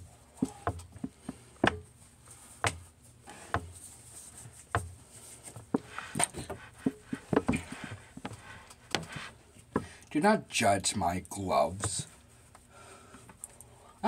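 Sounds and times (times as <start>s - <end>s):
glove rustling: 0.1s - 9.4s.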